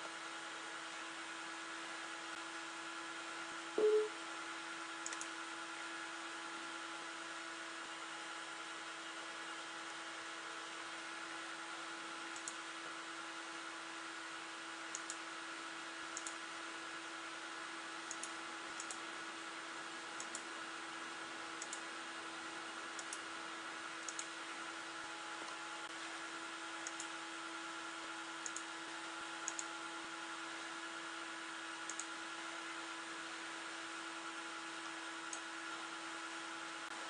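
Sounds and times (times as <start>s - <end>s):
computer fans whirring: 0.0s - 37.0s
mouse button clicks: 3.8s - 4.1s.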